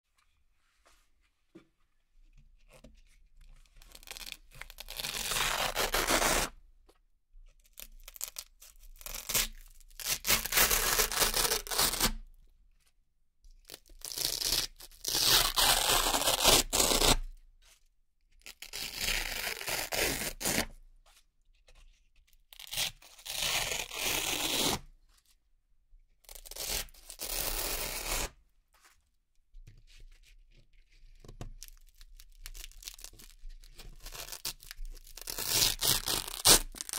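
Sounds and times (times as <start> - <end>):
velcro ripping: 3.9 - 6.5, 9.0 - 12.2, 14.0 - 17.2, 18.5 - 20.7, 22.6 - 24.8, 26.3 - 28.3, 34.0 - 36.9.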